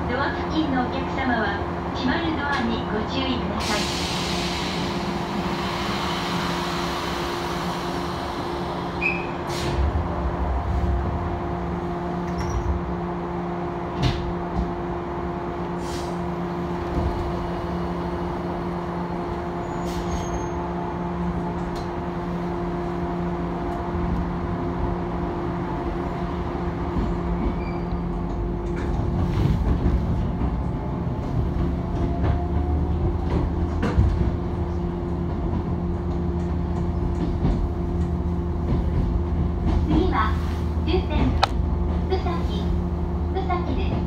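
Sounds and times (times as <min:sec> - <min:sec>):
train carriage electrical hum: 0:00.0 - 0:44.0.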